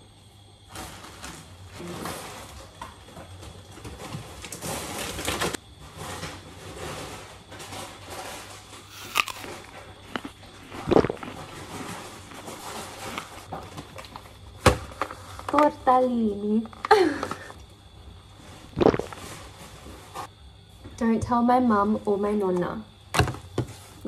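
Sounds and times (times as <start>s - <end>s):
plastic bags rustling: 0.7s - 15.8s.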